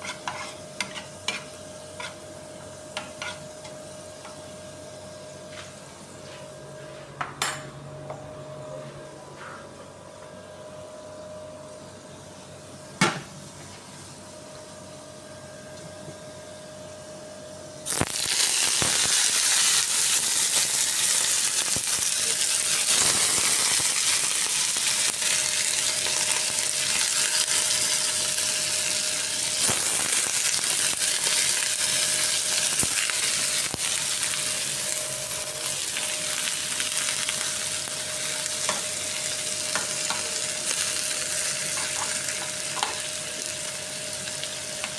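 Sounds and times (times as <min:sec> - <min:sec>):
shrimp sizzling in a pan: 0:00.0 - 0:05.1, 0:17.9 - 0:44.9.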